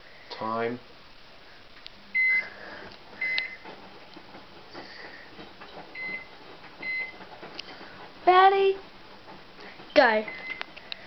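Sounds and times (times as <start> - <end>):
microwave keypad beeps: 2.2 - 2.5, 3.2 - 3.6, 6.0 - 7.1, 10.3 - 10.7.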